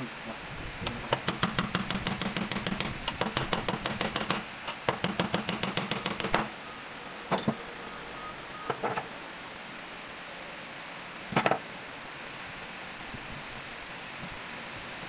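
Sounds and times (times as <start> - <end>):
sharp metal knocking: 0.8 - 6.5.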